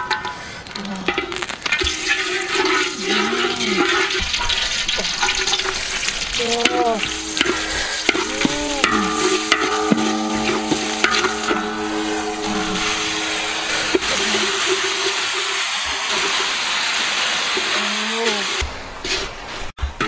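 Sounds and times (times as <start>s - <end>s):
food sizzling in hot oil: 0.0s - 18.7s
squealing ringing tones: 6.6s - 15.4s.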